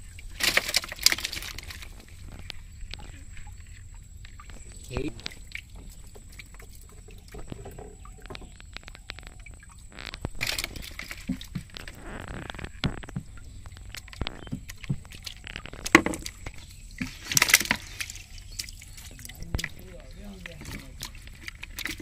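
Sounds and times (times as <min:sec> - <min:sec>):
water splashing in bucket: 0:00.0 - 0:22.0
knocks and clicks: 0:07.3 - 0:17.8.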